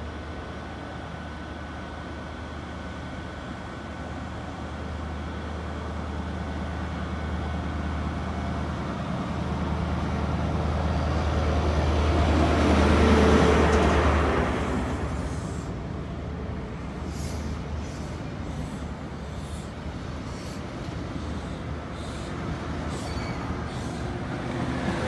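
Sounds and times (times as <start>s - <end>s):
train coaches rolling by: 0.0s - 25.0s
train diesel engine hum: 0.0s - 25.0s
high squeals: 22.9s - 24.0s.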